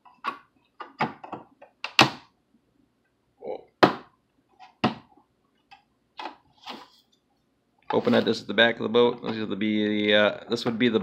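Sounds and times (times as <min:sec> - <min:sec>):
hard plastic clicks and knocks: 0:00.0 - 0:02.3.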